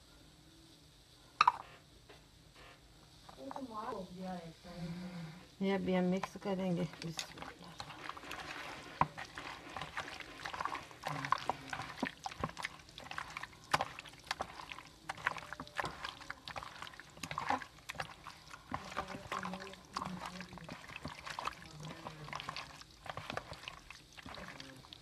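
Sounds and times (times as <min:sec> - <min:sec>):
hand squelching raw chicken: 0:07.0 - 0:25.0.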